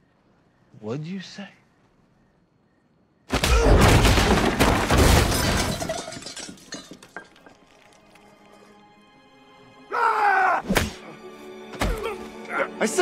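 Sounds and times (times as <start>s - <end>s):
loud shattering crash: 3.3s - 7.1s
debris clattering: 3.3s - 8.0s.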